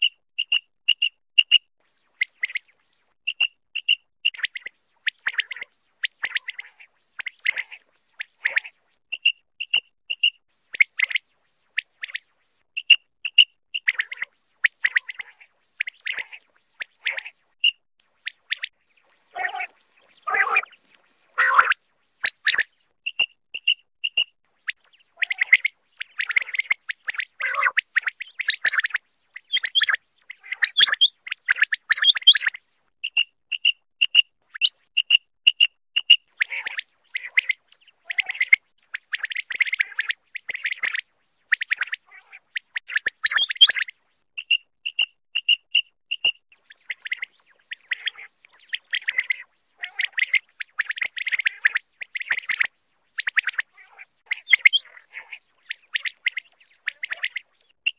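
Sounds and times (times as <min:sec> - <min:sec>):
quail calling: 0:02.2 - 0:11.2, 0:12.8 - 0:57.9.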